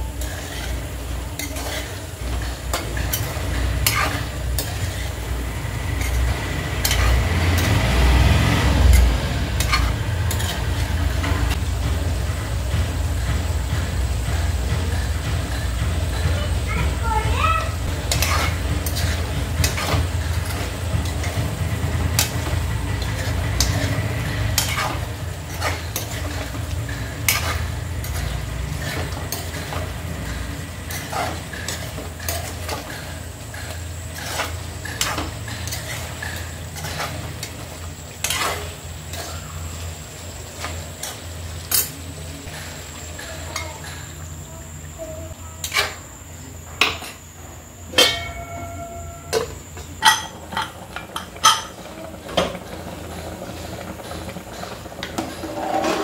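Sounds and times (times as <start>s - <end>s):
spoon scraping a metal pan: 0.1s - 7.8s, 8.8s - 11.4s, 17.9s - 39.7s, 45.6s - 46.0s, 54.0s - 56.0s.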